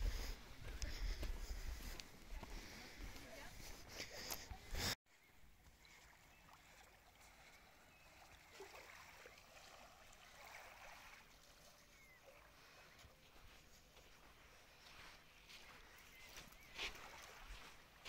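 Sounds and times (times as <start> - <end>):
lake water washing on shore: 5.8 - 13.8, 14.4 - 18.0.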